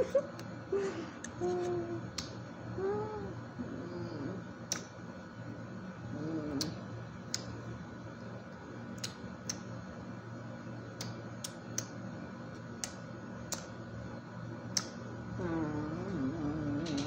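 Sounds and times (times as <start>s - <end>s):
person humming: 0.8s - 2.2s, 2.8s - 4.5s, 6.1s - 6.8s, 15.4s - 17.0s
wet mouth clicks and lip smacks: 4.7s - 4.9s, 9.0s - 9.6s, 12.8s - 13.7s.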